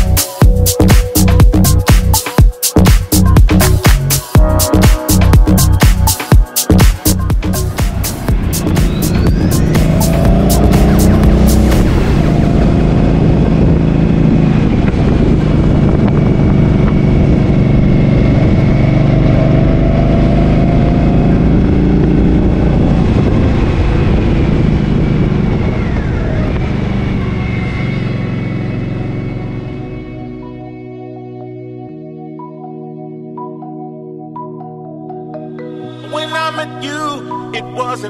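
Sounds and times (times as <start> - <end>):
motorcycle engine running: 2.8 - 30.3
road and wind noise: 6.7 - 30.7.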